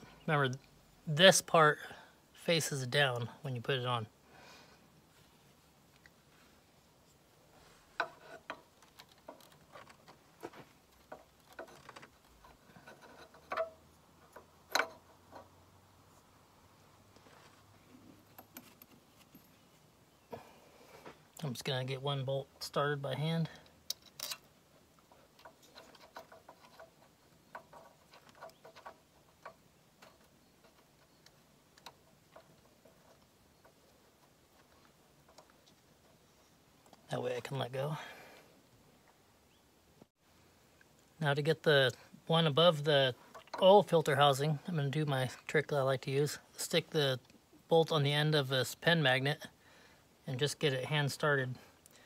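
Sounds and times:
faint metallic ticks and clicks: 0:08.0 - 0:15.5, 0:23.4 - 0:36.2.

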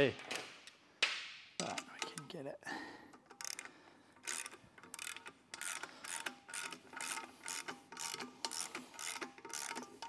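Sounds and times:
hand ratchet clicking: 0:03.1 - 0:10.0.

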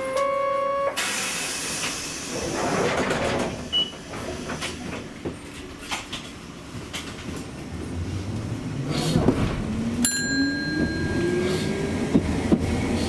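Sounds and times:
tram rumbling: 0:00.0 - 0:13.0
tram bell ding: 0:10.0 - 0:12.0.

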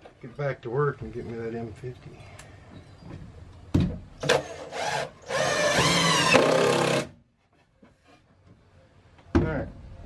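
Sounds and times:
power drill driving screw: 0:04.2 - 0:07.1.

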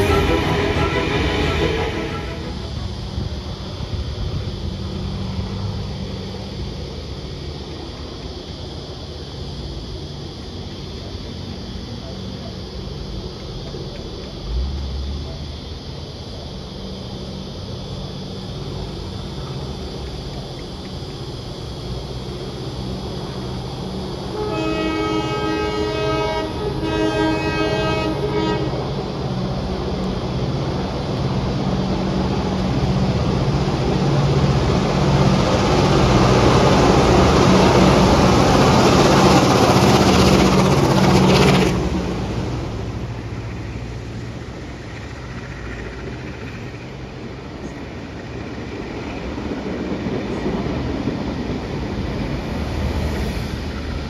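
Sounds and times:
locomotive horn blasts: 0:00.0 - 0:03.5, 0:24.3 - 0:29.0
diesel locomotive engines: 0:00.0 - 0:54.0.

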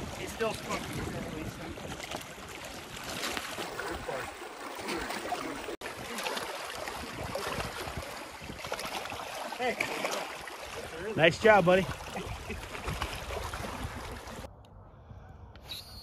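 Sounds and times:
wind on microphone: 0:00.0 - 0:04.3, 0:06.8 - 0:09.2, 0:11.9 - 0:15.7
water washing against rocks: 0:00.0 - 0:14.5.

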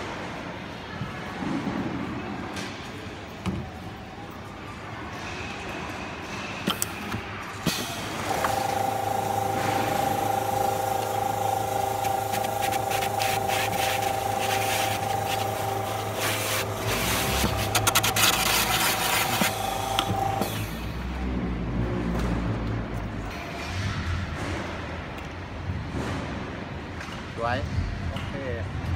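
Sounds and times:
motor whine: 0:07.7 - 0:20.9.

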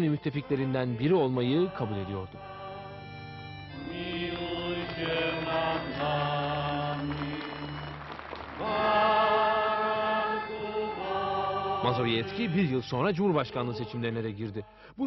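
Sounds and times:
chant-like choral singing: 0:01.5 - 0:14.8.

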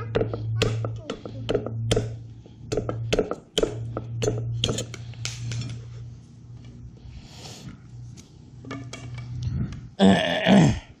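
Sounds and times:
machete chopping on wooden block: 0:01.5 - 0:04.8.

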